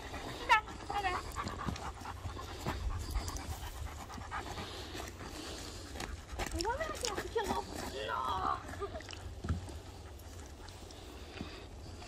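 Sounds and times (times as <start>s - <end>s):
dog panting: 0.0s - 8.0s, 9.6s - 12.0s.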